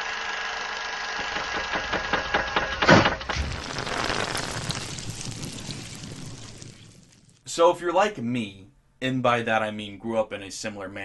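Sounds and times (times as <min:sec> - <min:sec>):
crackling clicks: 0:01.4 - 0:06.9.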